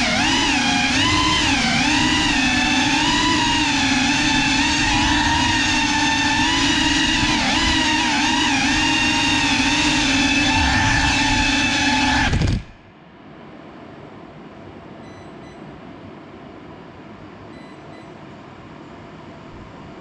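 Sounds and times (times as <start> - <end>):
drone motors and propellers whining: 0.0 - 12.9
faint short beeps: 15.0 - 15.7, 17.5 - 18.2.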